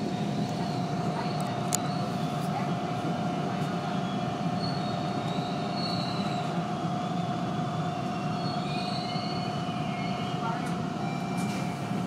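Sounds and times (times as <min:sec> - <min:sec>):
train wheels rumbling on track: 0:00.0 - 0:12.0
high-pitched wheel squeals: 0:08.3 - 0:10.4.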